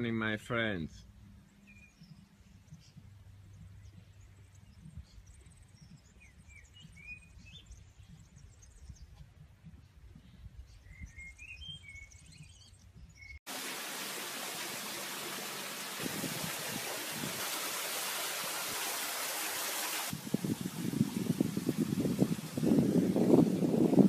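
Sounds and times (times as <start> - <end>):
bird chirps: 0.9 - 9.2, 10.6 - 13.4
wind buffeting microphone: 1.9 - 13.3, 15.8 - 18.8, 20.1 - 24.0
steady rushing hiss: 13.5 - 24.0.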